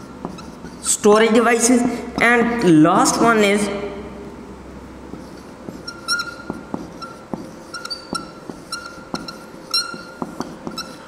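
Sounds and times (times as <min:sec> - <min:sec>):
marker squeaking on whiteboard: 0:00.0 - 0:01.4, 0:05.1 - 0:11.0.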